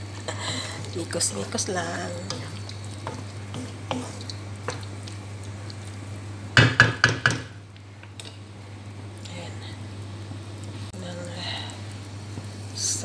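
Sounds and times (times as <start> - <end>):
meat sizzling in frying pan: 0.0 - 13.0
spatula scraping pan: 1.9 - 4.8.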